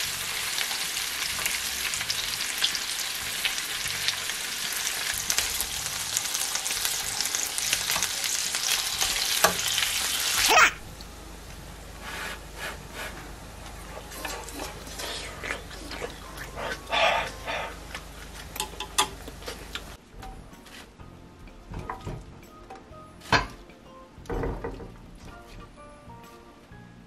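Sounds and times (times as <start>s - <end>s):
meat sizzling in grill pan: 0.0s - 10.7s
chopsticks and scissors clicking: 17.9s - 19.9s.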